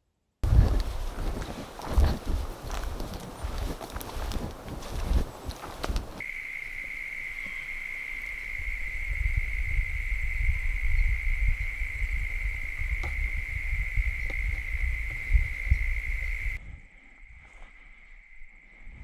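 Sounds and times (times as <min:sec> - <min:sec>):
wind buffeting microphone: 0:00.4 - 0:06.2, 0:08.4 - 0:17.0.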